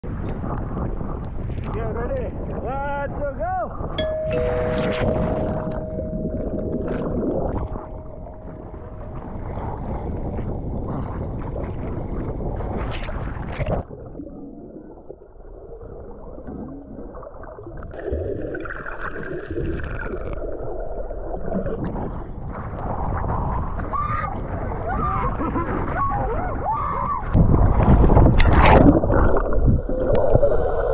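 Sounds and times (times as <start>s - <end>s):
faint high wavering sound: 4.0s - 10.6s.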